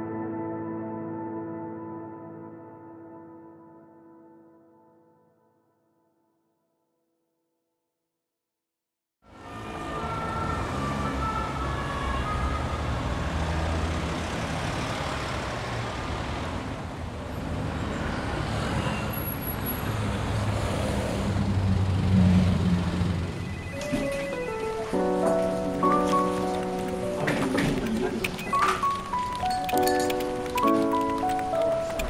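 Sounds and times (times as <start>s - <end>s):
emergency siren wailing: 9.3s - 15.2s
traffic rumble: 9.3s - 32.0s.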